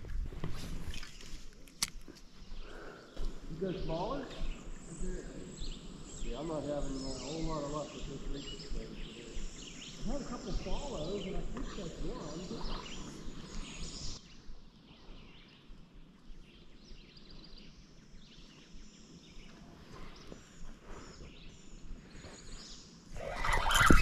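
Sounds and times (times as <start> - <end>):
riverside ambience: 0.0 - 15.0
faint bird chirps: 2.4 - 24.0.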